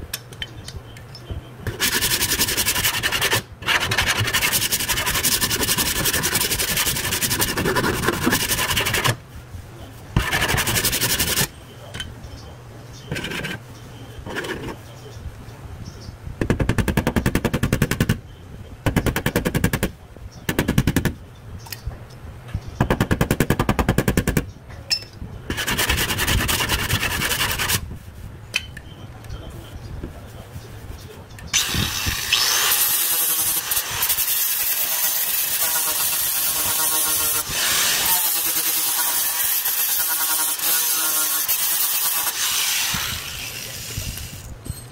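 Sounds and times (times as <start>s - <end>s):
angle grinder grinding metal: 31.6s - 44.5s.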